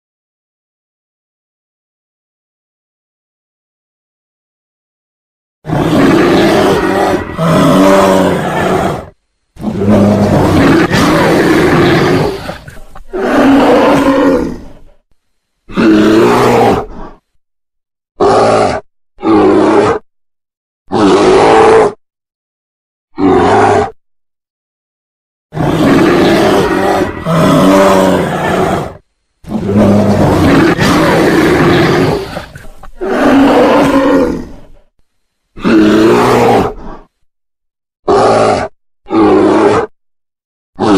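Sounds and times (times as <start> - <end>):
bear roaring: 5.7 - 15.0, 15.7 - 17.3, 18.2 - 20.0, 20.9 - 22.0, 23.2 - 24.0, 25.5 - 34.9, 35.6 - 37.2, 38.0 - 39.9.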